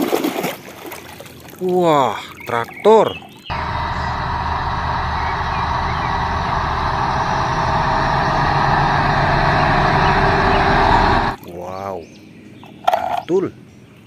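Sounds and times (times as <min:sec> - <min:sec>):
tractor diesel engine running: 0:03.5 - 0:11.4.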